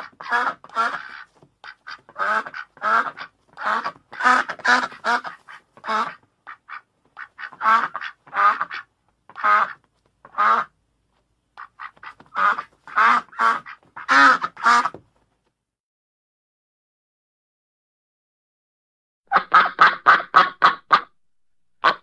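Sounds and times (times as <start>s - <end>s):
duck quacking: 0.0s - 10.8s, 11.6s - 15.0s, 19.3s - 21.2s, 21.8s - 22.0s.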